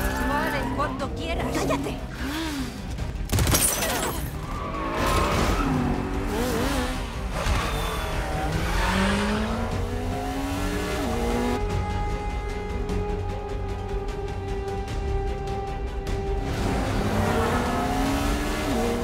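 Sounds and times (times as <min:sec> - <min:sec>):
tires screeching: 0:00.0 - 0:02.7, 0:04.2 - 0:11.6, 0:16.4 - 0:19.0
film music score: 0:00.0 - 0:19.0
engines revving: 0:04.3 - 0:11.9, 0:15.7 - 0:19.0.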